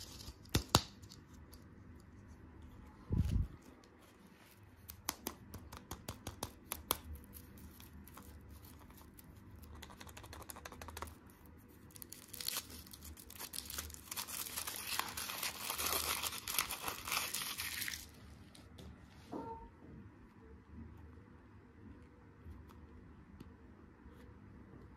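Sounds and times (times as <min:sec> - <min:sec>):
foil wrapper crinkling and tearing: 0:11.9 - 0:18.2.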